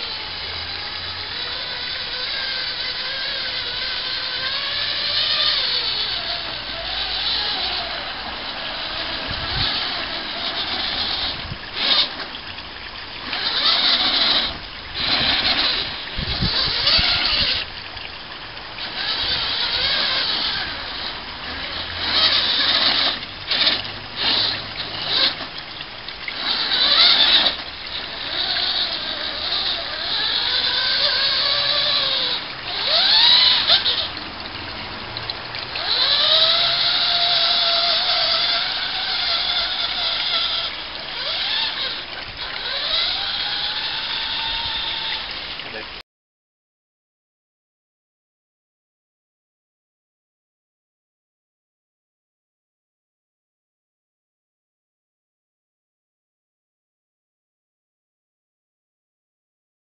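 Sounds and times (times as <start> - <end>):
rc truck motors whining: 0.0 - 46.0.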